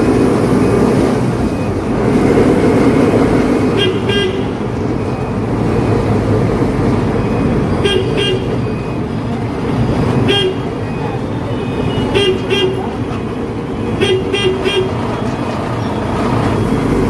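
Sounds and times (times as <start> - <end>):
truck engine running: 0.0 - 17.0
truck horn toots: 3.7 - 4.6, 7.8 - 8.7, 10.2 - 13.0, 13.8 - 15.1.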